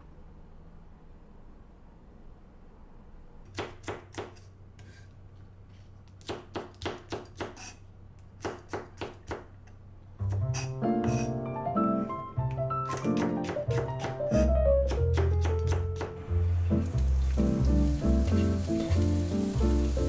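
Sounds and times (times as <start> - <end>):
knife chopping on wooden board: 8.4 - 9.5, 12.9 - 16.2.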